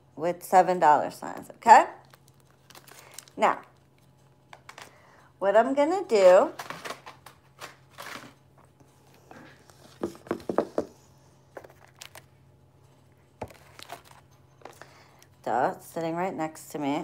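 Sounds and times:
faint steady hum: 0.0s - 17.0s
objects knocking on tabletop: 10.0s - 11.0s.

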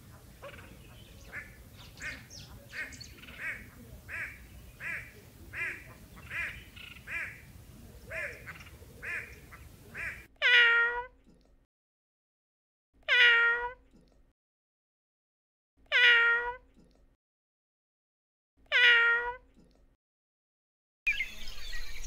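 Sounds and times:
bird repeated short calls: 0.0s - 11.1s.

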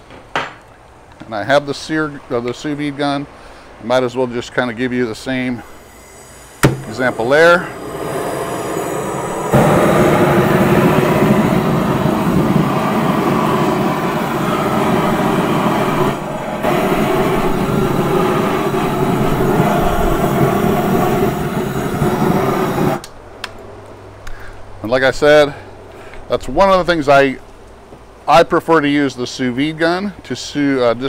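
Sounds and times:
propane torch flame roaring: 5.2s - 23.2s.

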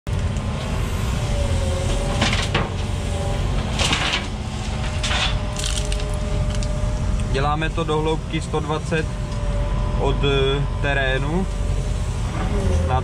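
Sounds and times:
diesel engine running under load: 0.1s - 13.0s.

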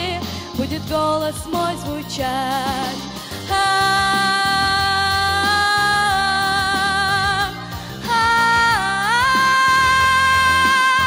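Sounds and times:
backing track music: 0.0s - 11.0s
girl singing with vibrato: 0.0s - 11.0s.

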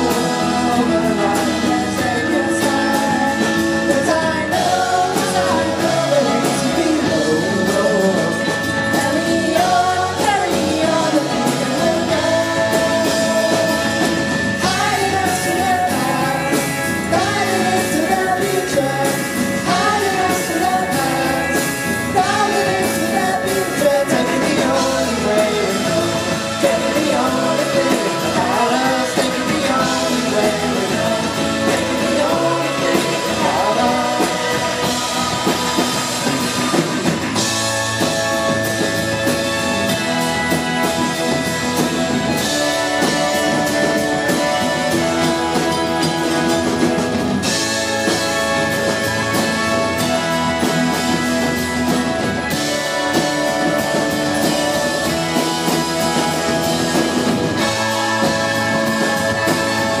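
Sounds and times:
woman singing: 0.0s - 35.6s
live rock band playing: 0.0s - 60.0s.

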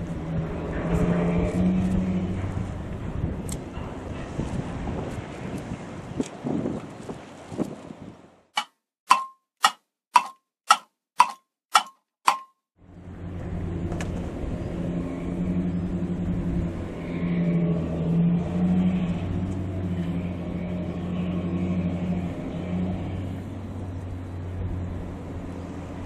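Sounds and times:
low engine hum: 0.0s - 8.4s, 12.8s - 26.0s
wind: 0.0s - 26.0s
sharp clock ticks: 8.6s - 12.5s.

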